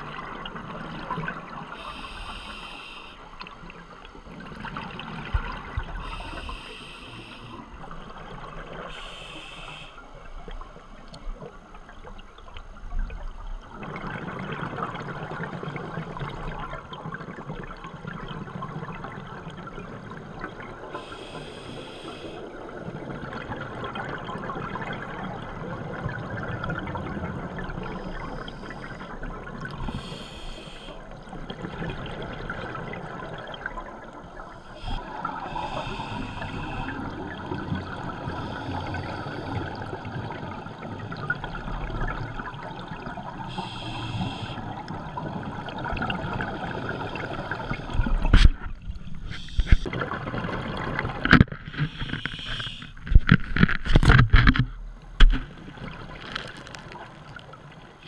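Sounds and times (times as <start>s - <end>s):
regulator inhale hiss: 1.7s - 3.4s, 6.0s - 7.7s, 8.9s - 10.1s, 20.9s - 22.5s, 29.8s - 31.1s, 34.7s - 37.1s, 38.2s - 39.8s, 43.5s - 44.7s, 49.3s - 49.9s, 51.8s - 53.0s
exhaled air bubbling: 12.7s - 21.6s, 22.3s - 57.8s.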